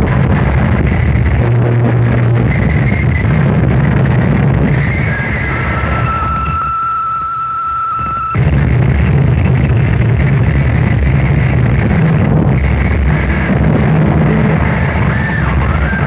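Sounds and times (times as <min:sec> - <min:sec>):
harsh distorted noise music: 0:00.0 - 0:16.0
thin wavering whistle: 0:04.8 - 0:08.4.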